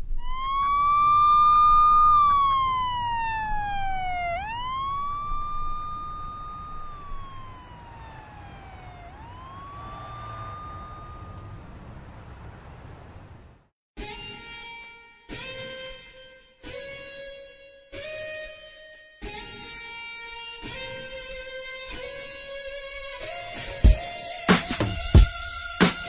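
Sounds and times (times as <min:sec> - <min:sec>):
siren wailing: 0:00.0 - 0:12.8.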